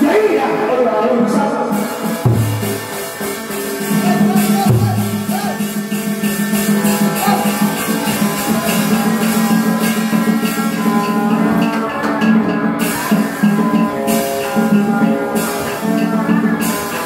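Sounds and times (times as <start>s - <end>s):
deep drum strikes: 1.8s - 12.2s
fast percussion clicks: 1.8s - 17.0s.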